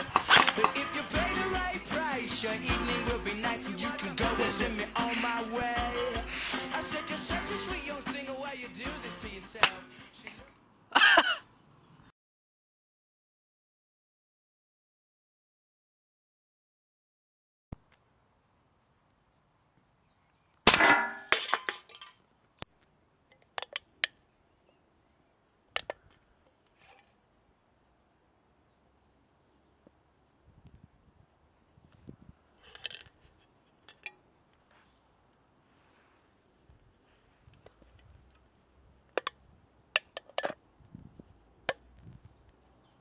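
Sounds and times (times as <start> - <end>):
pellet hitting drink can: 0.1 - 0.9
aluminium can clicking and crinkling: 0.1 - 1.0, 23.3 - 24.2, 25.8 - 27.1, 32.6 - 34.2, 39.0 - 40.6.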